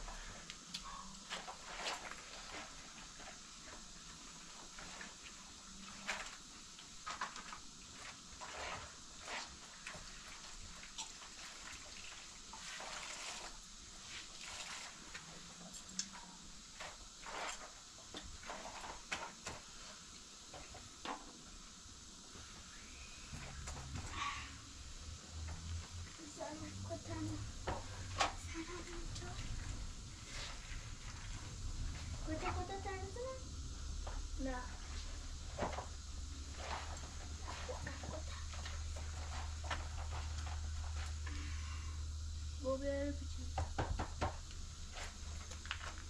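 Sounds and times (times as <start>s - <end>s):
hands scrubbing in water: 4.2s - 15.9s.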